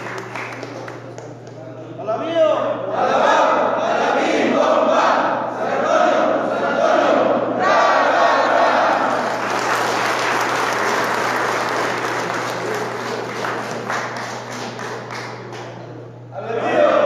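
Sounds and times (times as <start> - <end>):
crowd clapping: 0.0 - 1.8, 8.7 - 16.1
crowd voices: 2.9 - 17.0.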